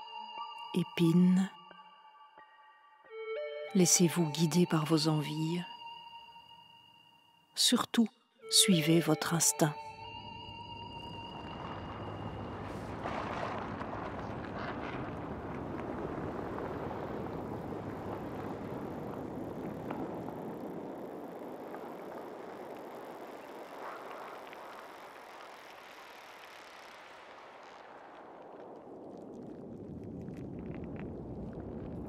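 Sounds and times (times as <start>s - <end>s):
faint crackles: 11.1s - 32.0s.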